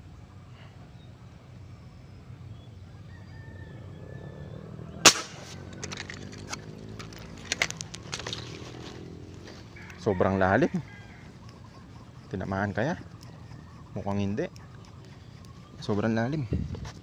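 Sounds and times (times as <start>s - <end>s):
fishing gun shot: 5.0s - 6.0s.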